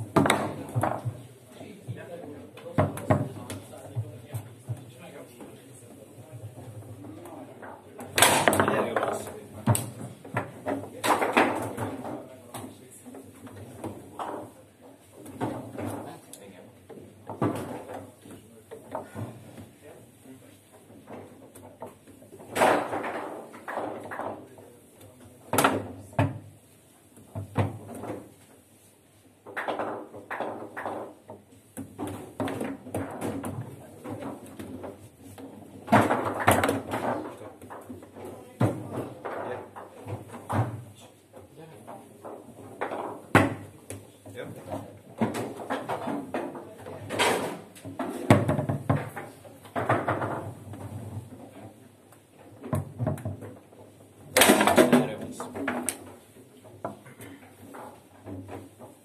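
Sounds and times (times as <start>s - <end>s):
foosball ball knocks: 0.0s - 1.2s, 8.0s - 12.7s, 44.6s - 51.3s
foosball rods knocking: 0.0s - 1.3s, 6.5s - 16.2s, 16.8s - 19.8s, 20.6s - 24.6s, 29.2s - 59.0s.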